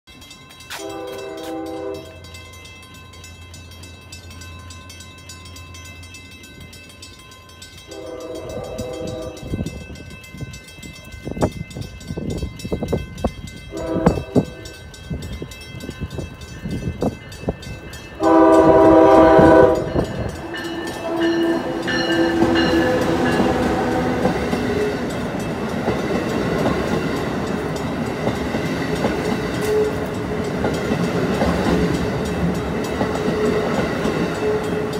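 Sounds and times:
train rumbling past: 0.2 - 34.9
train wheel clatter: 0.4 - 34.9
train horn blasts: 0.7 - 2.3, 7.9 - 9.8, 13.7 - 14.8, 18.2 - 25.1, 29.6 - 30.2, 33.3 - 34.9.

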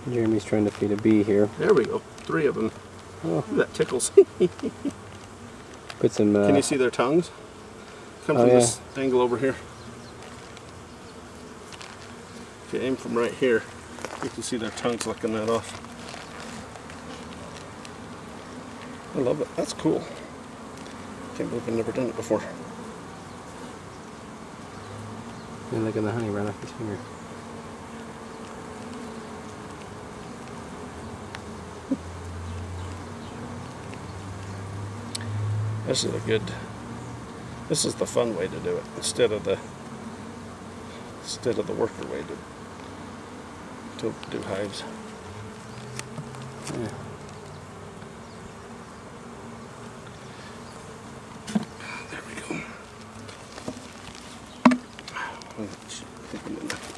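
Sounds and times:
bees buzzing: 0.0 - 56.9
short knock: 54.6 - 54.9.

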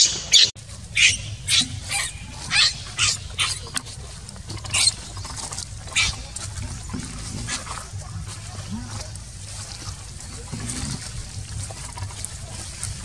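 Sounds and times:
infant monkey screaming: 0.0 - 3.8, 4.6 - 6.4.

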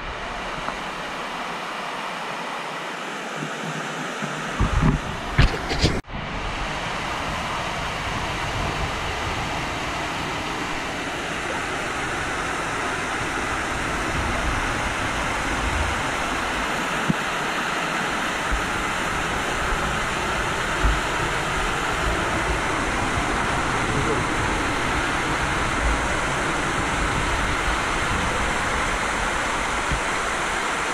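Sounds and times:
waterfall rushing: 0.0 - 5.4, 6.0 - 30.9.

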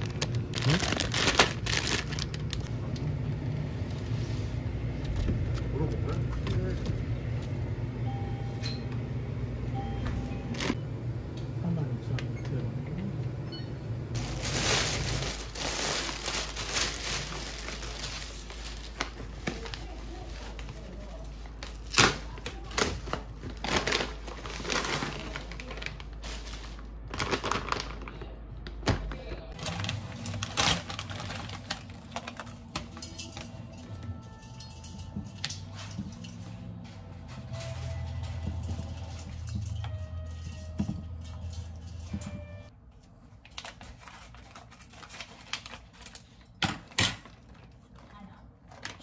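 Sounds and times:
foil bag crinkling: 0.0 - 2.7, 14.2 - 28.4, 29.5 - 34.0, 47.2 - 49.0
plastic bag rustling: 0.0 - 2.7, 14.1 - 28.4, 29.5 - 36.0.

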